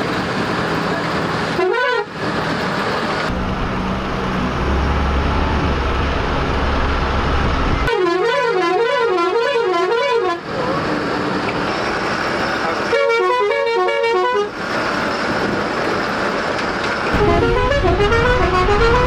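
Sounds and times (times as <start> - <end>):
bus rumbling and rattling: 0.0 - 19.0
warbling bus horn: 1.6 - 2.2, 7.9 - 10.4, 12.9 - 14.6, 17.2 - 19.0.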